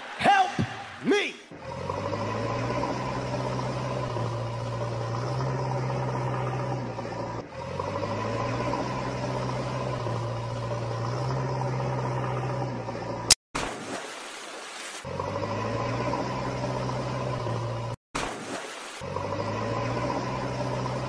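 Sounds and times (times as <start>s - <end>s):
engine idling: 1.6s - 13.4s.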